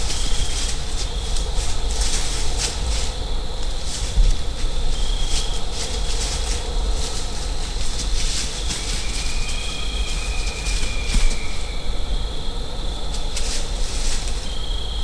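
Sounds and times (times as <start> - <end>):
soft crackles: 0.0 - 11.6.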